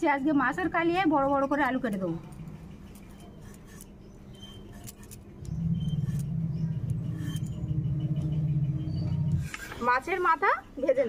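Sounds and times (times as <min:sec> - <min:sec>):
low motor hum: 0:04.3 - 0:10.4.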